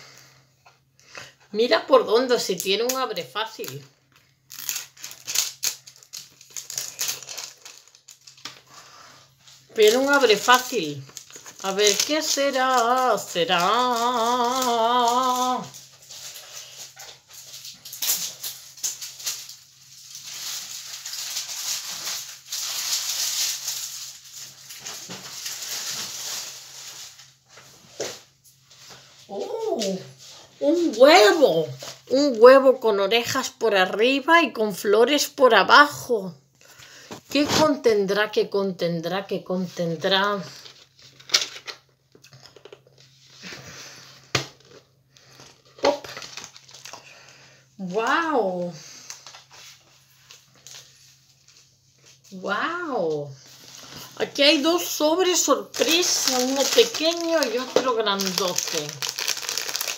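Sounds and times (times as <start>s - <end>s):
cardboard packaging rustling and tearing: 2.8s - 32.3s, 40.5s - 48.0s, 48.8s - 52.4s, 53.4s - 59.9s.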